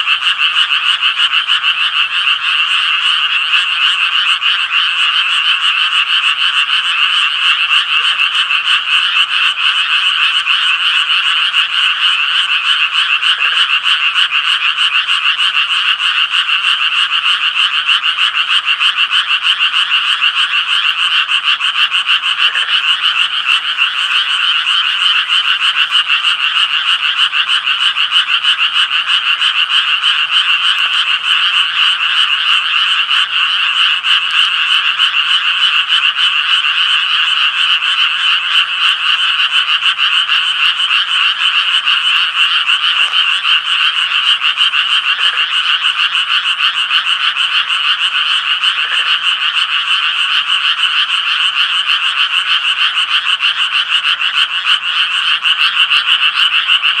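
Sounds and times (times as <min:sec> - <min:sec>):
tree frogs croaking chorus: 0:00.0 - 0:57.0.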